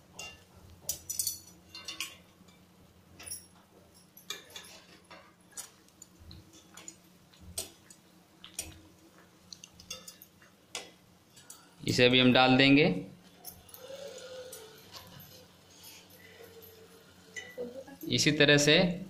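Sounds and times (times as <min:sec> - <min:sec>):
metal utensils clinking on pan: 0:00.1 - 0:02.6, 0:04.1 - 0:07.0, 0:09.8 - 0:10.4, 0:13.4 - 0:18.0.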